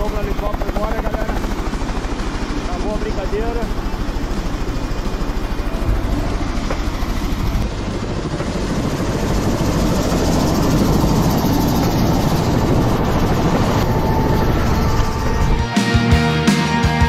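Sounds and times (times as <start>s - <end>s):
helicopter engine noise: 0.0s - 16.4s
helicopter rotor blade beat: 0.0s - 17.0s.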